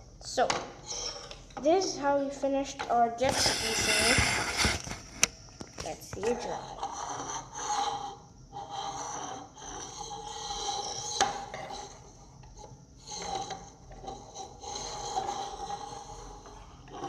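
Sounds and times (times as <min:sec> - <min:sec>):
plastic model rubbing on wooden table: 0:03.3 - 0:05.1, 0:13.0 - 0:17.0.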